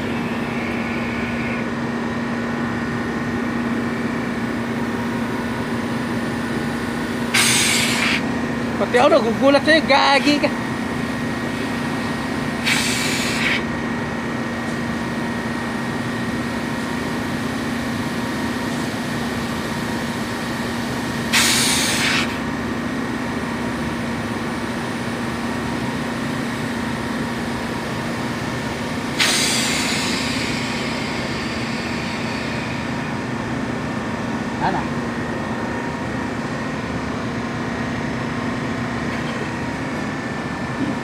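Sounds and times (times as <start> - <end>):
refrigeration compressor humming: 0.0 - 41.0
loud hisses of pressurized gas: 7.3 - 8.2, 12.6 - 13.6, 21.3 - 22.4, 29.1 - 33.0.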